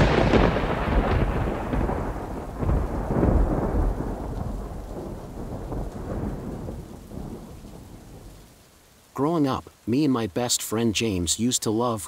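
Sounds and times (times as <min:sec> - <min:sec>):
thunder rumbling: 0:00.0 - 0:08.7
rain: 0:00.0 - 0:12.0.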